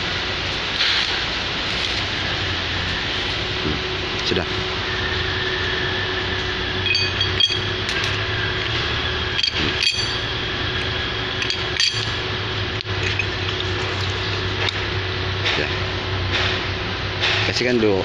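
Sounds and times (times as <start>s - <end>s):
steady background hum: 0.0s - 18.0s
metal parts clinking: 6.8s - 14.9s.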